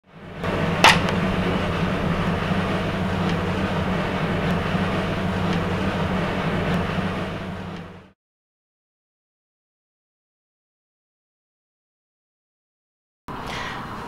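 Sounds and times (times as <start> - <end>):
low rumble with hum: 0.1 - 8.1.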